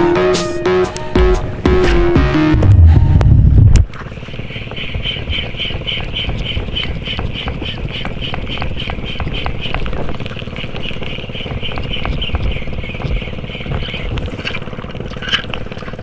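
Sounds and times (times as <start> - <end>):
low rumble: 1.6 - 4.0
fishing reel ticking whir: 3.9 - 16.0.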